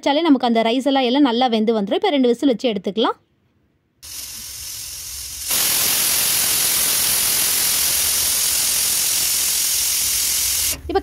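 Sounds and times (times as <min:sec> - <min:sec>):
pressure cooker steam hissing: 0:04.0 - 0:10.8
pressure cooker whistle: 0:04.0 - 0:10.8.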